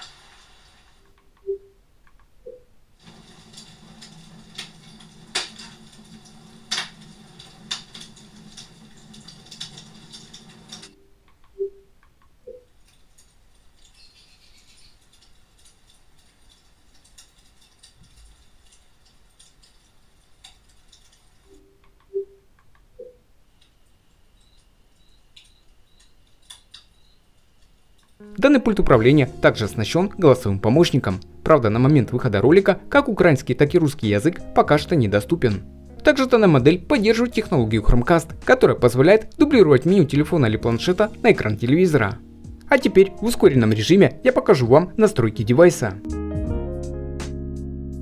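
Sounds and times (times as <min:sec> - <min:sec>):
log fire crackling and popping: 0:00.0 - 0:01.0, 0:03.0 - 0:11.0, 0:14.8 - 0:21.5.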